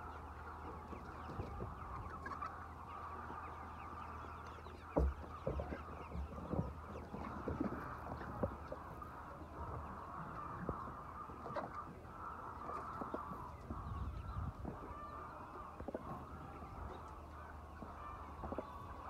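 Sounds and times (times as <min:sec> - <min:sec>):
flock of chickens clucking: 0:00.0 - 0:19.0.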